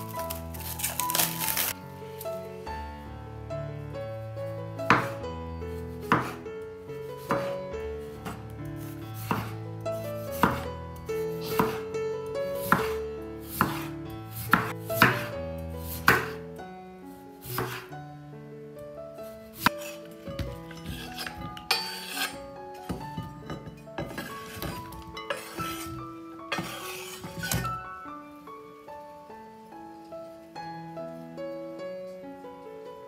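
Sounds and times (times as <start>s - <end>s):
soft background music: 0.0s - 33.0s
knife slicing on cutting board: 9.2s - 9.5s, 11.4s - 11.8s, 12.6s - 16.4s, 17.4s - 17.9s, 19.6s - 23.1s, 24.0s - 27.7s.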